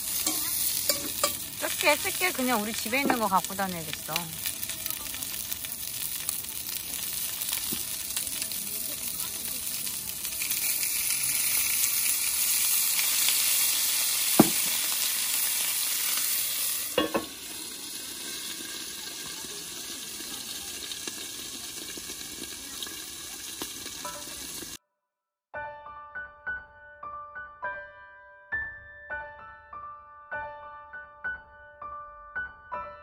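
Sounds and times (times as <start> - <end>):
food sizzling in a frying pan: 0.0 - 24.8
utensil knocking on pan: 0.2 - 1.5, 3.0 - 3.3, 14.4 - 14.8, 17.0 - 17.4.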